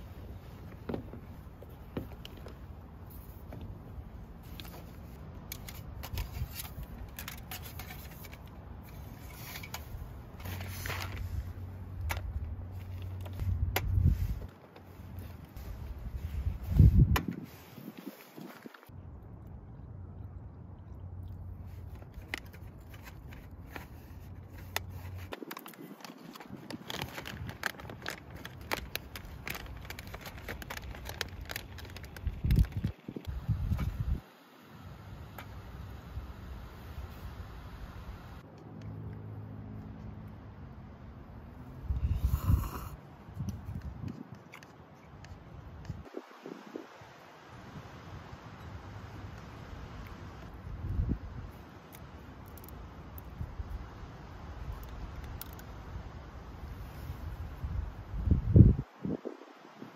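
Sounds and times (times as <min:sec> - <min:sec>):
items clicking and knocking: 0:05.4 - 0:11.2, 0:21.9 - 0:33.3
packaging rustling: 0:22.2 - 0:33.2.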